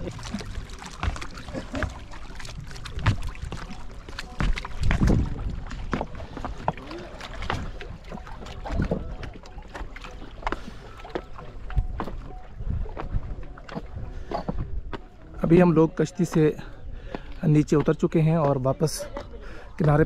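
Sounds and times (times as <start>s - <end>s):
boat bumping against stones: 0.0s - 12.3s, 12.9s - 20.0s.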